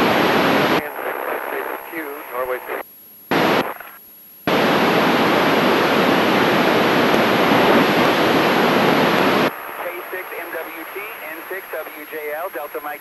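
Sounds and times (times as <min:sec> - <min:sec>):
radio static hiss: 0:00.0 - 0:13.0.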